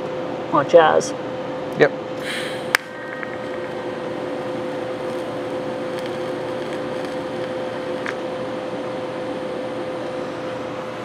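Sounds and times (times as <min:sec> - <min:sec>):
arc welder hissing: 0:02.2 - 0:10.8
welder humming: 0:02.2 - 0:11.0
welding arc snap: 0:04.7 - 0:08.2.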